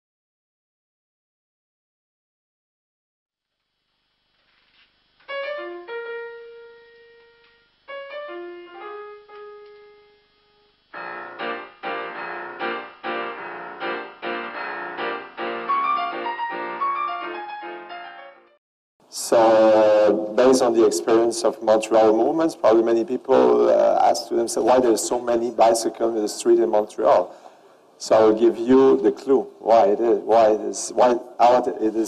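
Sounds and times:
solo piano music: 5.2 - 18.6.

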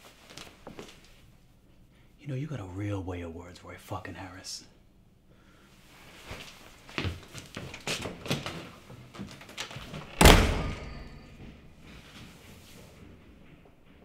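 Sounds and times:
shuffling: 0.0 - 1.9, 5.7 - 10.1, 11.3 - 14.0
door slamming shut: 9.9 - 11.8.

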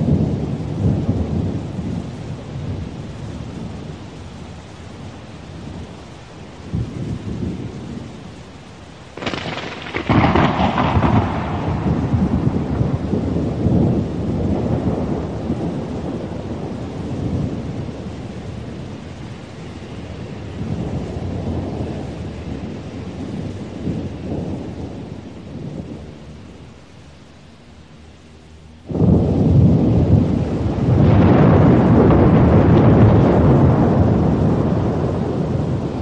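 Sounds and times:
rain falling steadily: 0.0 - 36.0
rolling thunder rumbles: 0.0 - 36.0
loud thunderclap: 9.2 - 18.9, 28.9 - 36.0.

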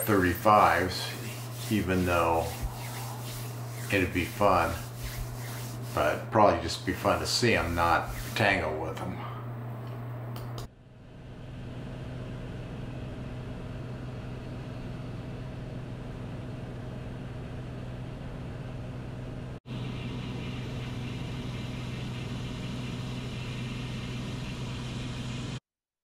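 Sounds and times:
propeller plane engine drone: 9.0 - 25.6.

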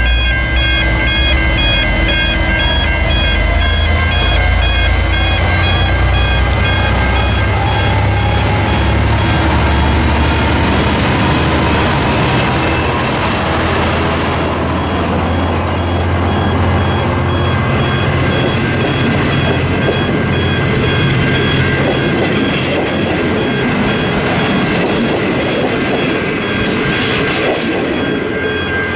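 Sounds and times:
diesel locomotive passing: 0.0 - 28.9
train wheels on rails: 0.0 - 28.9.

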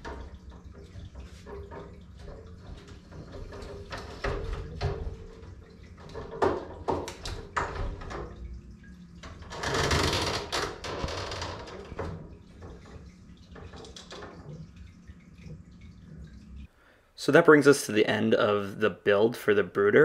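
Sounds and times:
clicks and knocks of handling: 0.0 - 8.4
low steady hum: 0.0 - 9.6, 10.4 - 19.1.

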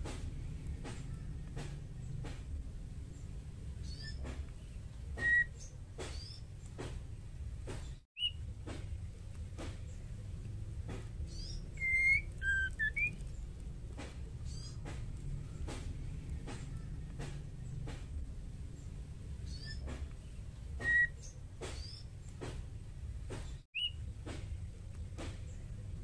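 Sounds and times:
steady low hum: 0.0 - 26.0
bird whistled calls: 5.1 - 6.4, 8.2 - 8.4, 11.3 - 13.4, 20.8 - 22.0, 23.8 - 24.0.

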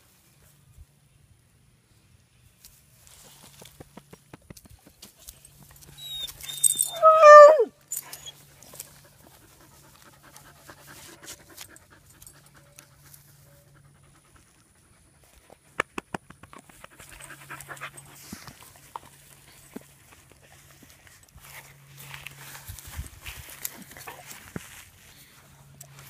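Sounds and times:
dog baying: 6.0 - 7.7.

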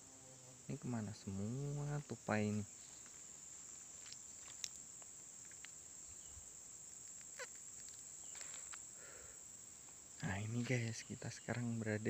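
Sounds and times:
high-pitched insect drone: 0.0 - 12.0
faint clicks: 4.0 - 5.8, 7.0 - 9.0, 11.4 - 11.7.

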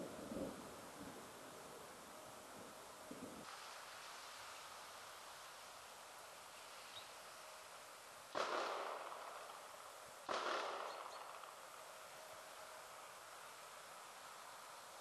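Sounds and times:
faint steady hiss: 0.0 - 15.0
sharp bangs echoing: 8.3 - 11.7.

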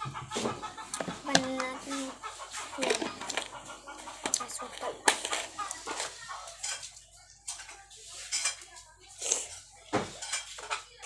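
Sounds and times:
faint voices: 0.0 - 11.0.

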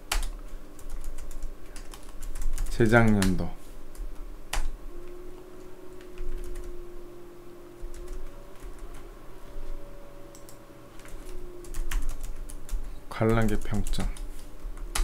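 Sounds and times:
typing on a keyboard: 0.1 - 3.4, 10.3 - 14.2.

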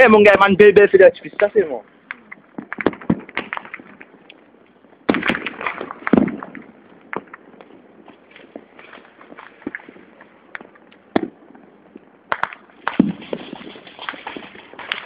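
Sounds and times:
firecrackers popping and cracking: 1.2 - 15.0.

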